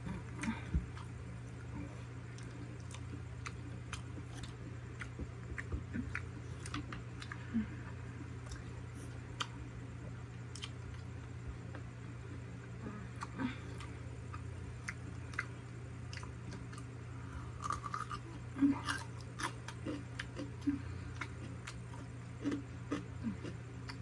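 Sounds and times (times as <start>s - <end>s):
steady low hum: 0.0s - 24.0s
mouth chewing with wet clicks: 2.3s - 7.4s, 8.4s - 9.7s, 10.5s - 11.2s, 13.2s - 16.9s, 18.8s - 24.0s.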